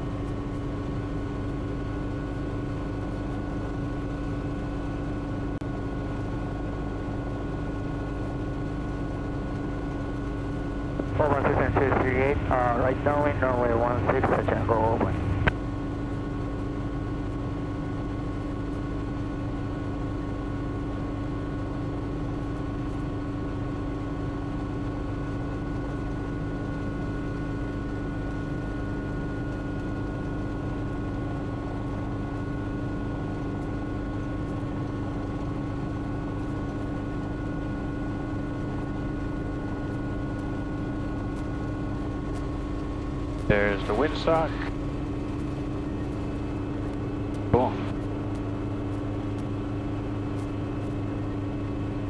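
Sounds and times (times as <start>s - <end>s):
constant whining tones: 0.0s - 52.0s
helicopter engine and rotor drone: 0.0s - 52.0s.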